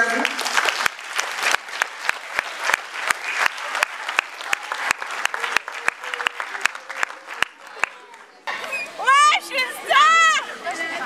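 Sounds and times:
audience applauding: 0:00.0 - 0:08.4
close hands clapping steadily: 0:00.1 - 0:08.4.

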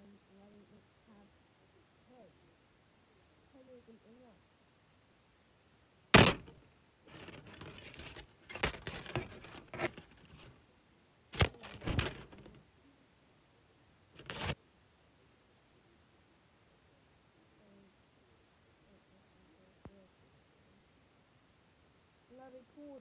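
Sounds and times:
sharp knocks: 0:06.2 - 0:06.5
rustling and crinkling: 0:06.2 - 0:10.6, 0:11.4 - 0:12.6, 0:14.2 - 0:14.6.

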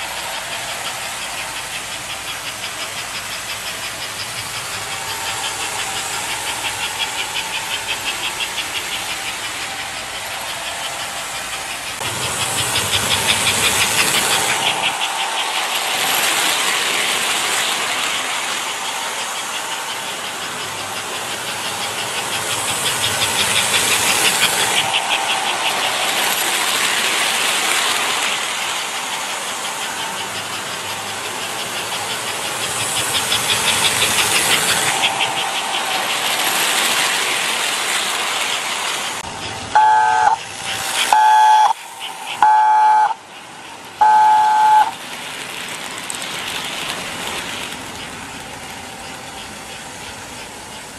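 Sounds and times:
model train hiss: 0:00.0 - 0:50.9
rhythmic clatter of train on track: 0:00.0 - 0:50.9
train whistle blasts: 0:39.8 - 0:40.4, 0:41.1 - 0:43.2, 0:44.0 - 0:44.9.

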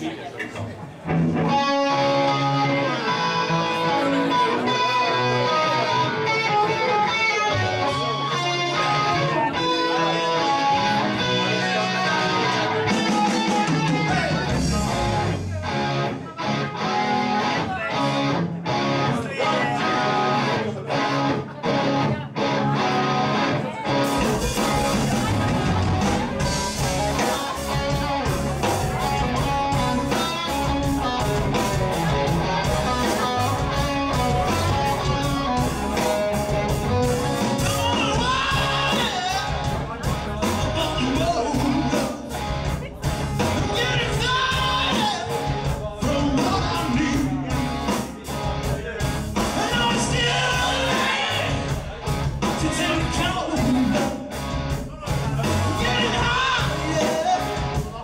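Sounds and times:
bass guitar: 0:00.0 - 0:58.0
drums: 0:00.0 - 0:58.0
strummed electric guitar: 0:00.6 - 0:58.0
man singing: 0:37.2 - 0:42.4, 0:43.4 - 0:48.1, 0:49.0 - 0:58.0.

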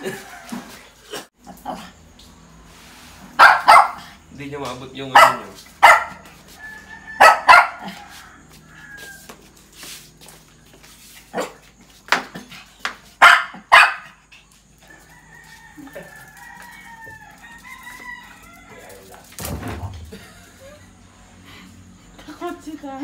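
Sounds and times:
dogs barking: 0:03.3 - 0:04.3, 0:05.1 - 0:06.5, 0:07.1 - 0:08.2, 0:13.1 - 0:14.3
rooster crowing: 0:06.1 - 0:09.7, 0:14.8 - 0:19.2.

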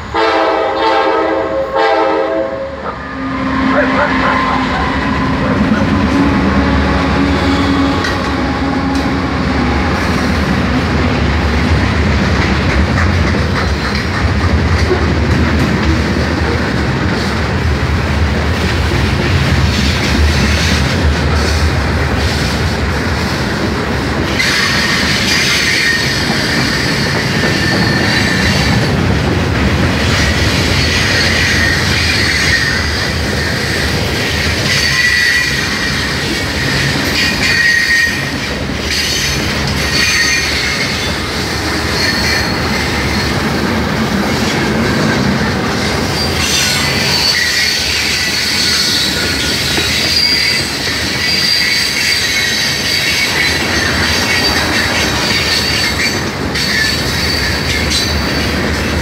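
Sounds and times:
freight train wheels rumbling: 0:00.0 - 0:59.0
high-pitched wheel squeal: 0:02.9 - 0:08.2, 0:30.8 - 0:33.8, 0:34.6 - 0:41.2, 0:41.8 - 0:43.4, 0:46.2 - 0:58.5.

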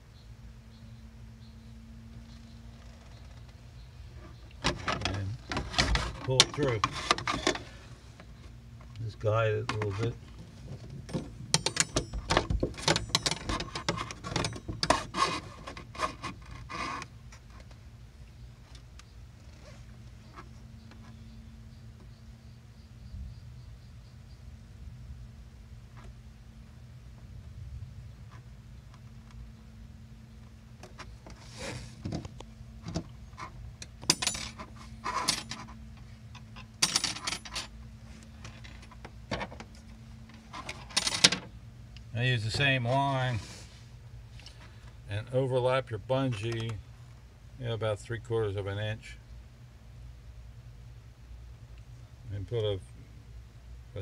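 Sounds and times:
faint low hum: 0:00.0 - 0:54.0
cord rubbing and scraping: 0:02.7 - 0:08.6, 0:09.7 - 0:17.8, 0:19.4 - 0:21.3, 0:30.8 - 0:41.4.

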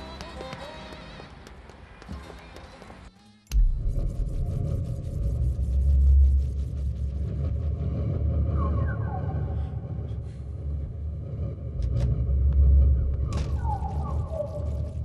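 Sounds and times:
low rumbling drone: 0:03.5 - 0:15.0.

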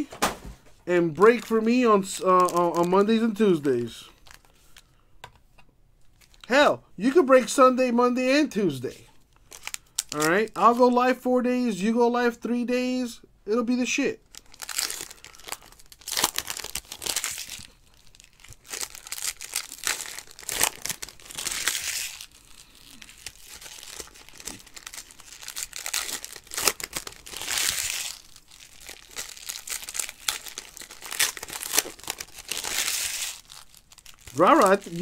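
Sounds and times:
foil wrappers crinkling and tearing: 0:01.2 - 0:04.9, 0:09.2 - 0:10.8, 0:14.2 - 0:35.0.

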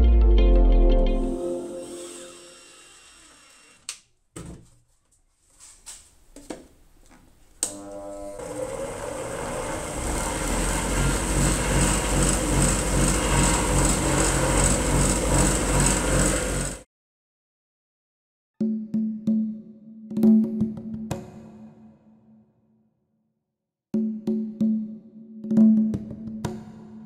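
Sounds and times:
bench grinder running: 0:01.6 - 0:03.8, 0:07.7 - 0:16.8.

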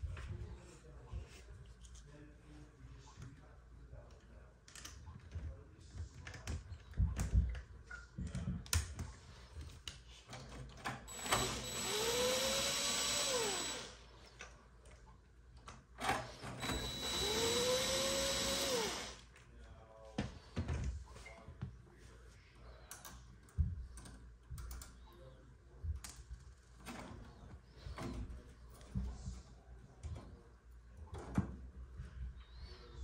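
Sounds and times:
cordless drill spinning: 0:11.1 - 0:14.0, 0:16.5 - 0:19.2.

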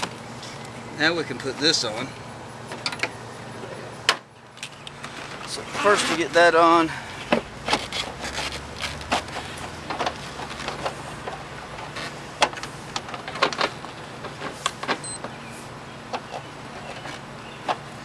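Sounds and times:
hard plastic rubbing and scraping: 0:07.3 - 0:14.8.

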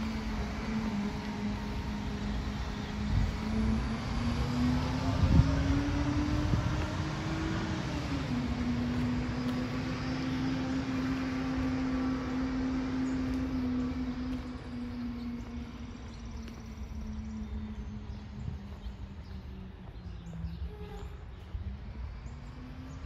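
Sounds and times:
garbage truck engine driving away: 0:00.0 - 0:15.5.

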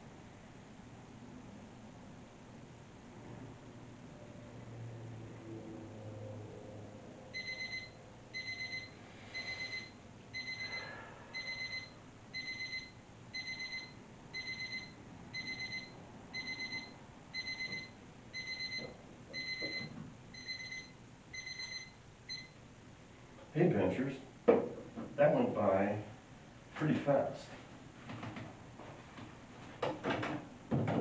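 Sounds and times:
digital timer alarm beeps: 0:07.3 - 0:22.6.

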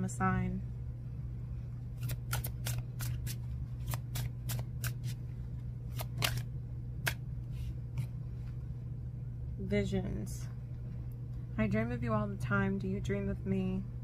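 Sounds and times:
cards being shuffled: 0:02.0 - 0:05.2, 0:05.9 - 0:08.2.

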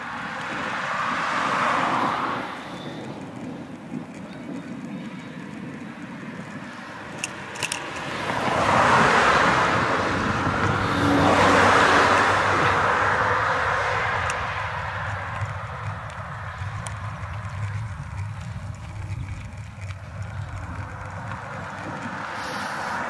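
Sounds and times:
cars passing: 0:00.0 - 0:23.0
sharp clicks: 0:03.0 - 0:08.7, 0:14.1 - 0:22.4.

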